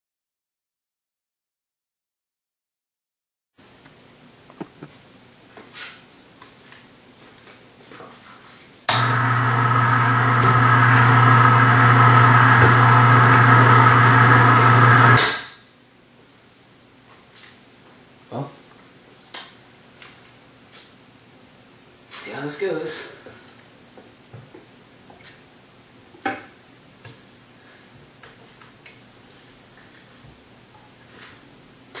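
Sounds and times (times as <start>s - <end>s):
hoist motor humming: 8.9s - 15.4s.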